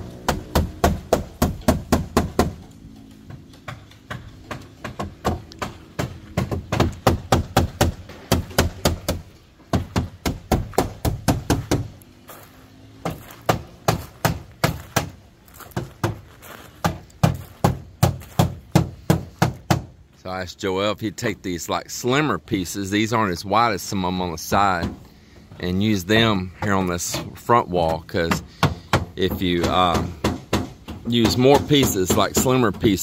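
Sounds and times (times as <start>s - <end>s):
hammering on bamboo: 0.0s - 12.0s, 13.0s - 20.0s, 24.5s - 25.6s, 26.5s - 33.0s.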